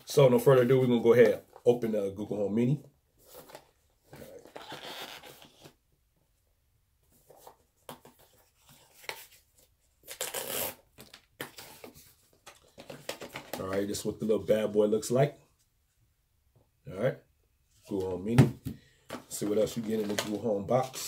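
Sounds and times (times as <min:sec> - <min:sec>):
cardboard packaging rustling: 0:19.1 - 0:21.0.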